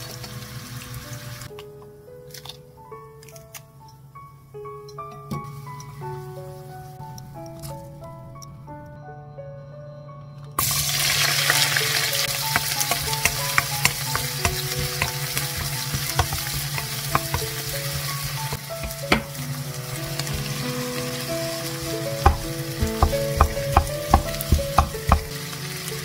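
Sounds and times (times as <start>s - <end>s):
vegetables sizzling in wok: 0.0s - 1.5s, 10.6s - 26.0s
wooden spatula tapping pan: 12.4s - 19.4s, 22.2s - 25.3s.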